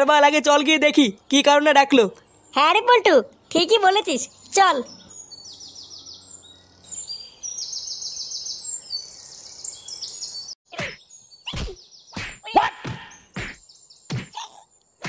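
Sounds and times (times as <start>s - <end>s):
faint outdoor hiss: 0.0s - 10.5s
birds chirping in high trills: 0.2s - 15.0s.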